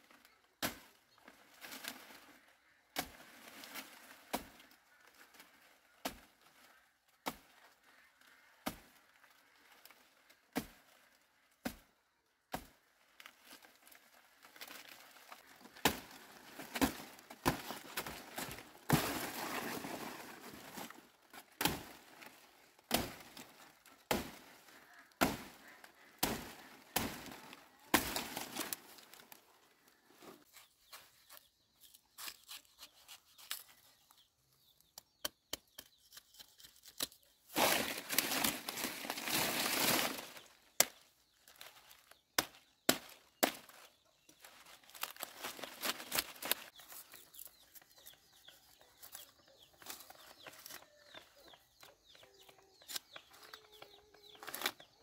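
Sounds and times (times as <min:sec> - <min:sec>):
machete chopping plant stalk: 0:15.8 - 0:19.4, 0:25.2 - 0:25.6, 0:26.2 - 0:28.7.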